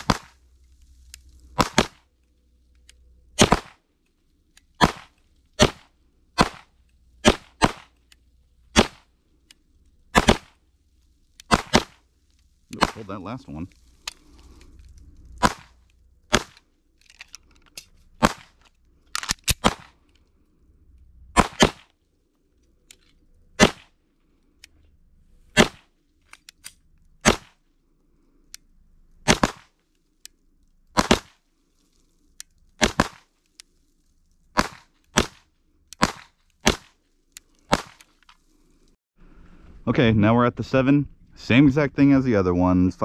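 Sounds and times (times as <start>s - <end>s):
pistol shots: 0.0s - 0.4s, 1.6s - 2.1s, 3.4s - 3.8s, 4.8s - 7.9s, 8.7s - 9.1s, 10.1s - 10.6s, 11.5s - 12.0s, 12.7s - 13.2s, 15.4s - 16.6s, 18.2s - 18.6s, 19.4s - 20.0s, 21.4s - 21.9s, 23.6s - 23.9s, 25.6s - 25.9s, 27.2s - 27.6s, 29.2s - 29.7s, 31.0s - 31.4s, 32.8s - 33.3s, 34.6s - 35.4s, 36.0s - 37.0s, 37.7s - 38.1s.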